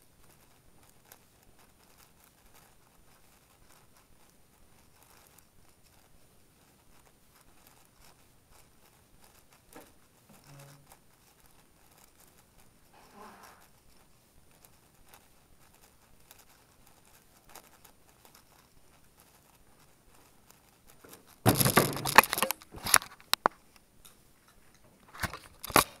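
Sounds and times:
rustling and knocks at microphone: 0:21.0 - 0:23.5
hand knocking camera: 0:21.1 - 0:23.5.

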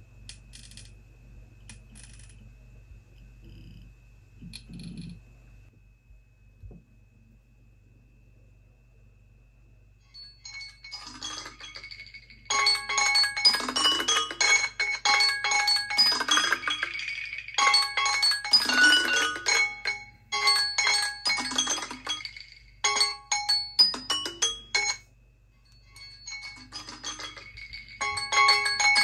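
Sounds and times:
phone timer chiming melody: 0:10.2 - 0:25.1, 0:25.7 - 0:29.0.

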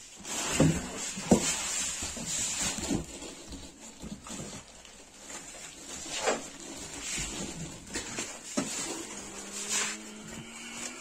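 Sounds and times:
plastic wrapping rustling: 0:00.0 - 0:11.0
styrofoam scraping: 0:00.0 - 0:11.0.

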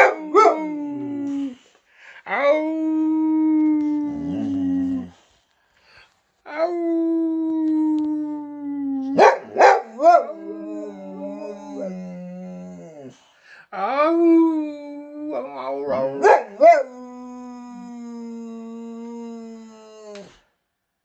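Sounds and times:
man howling: 0:02.3 - 0:05.1, 0:09.8 - 0:13.1, 0:13.8 - 0:20.3
dog howling: 0:06.5 - 0:13.1, 0:14.0 - 0:20.2.

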